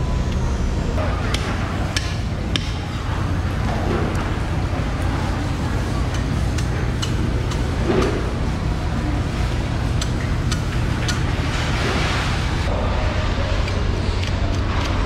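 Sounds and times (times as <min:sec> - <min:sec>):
faint voices: 0:00.8 - 0:15.0
sharp clicks and knocks: 0:01.3 - 0:02.9.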